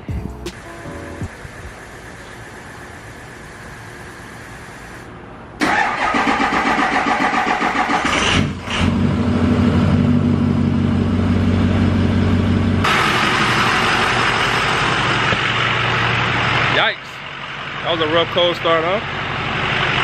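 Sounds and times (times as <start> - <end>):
starter cranking engine: 5.6 - 8.8
diesel engine idling roughly: 5.6 - 20.0.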